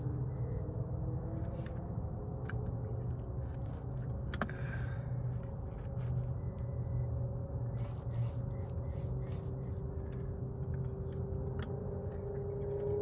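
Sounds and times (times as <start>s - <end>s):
toy car electric motor whining: 7.7s - 9.9s.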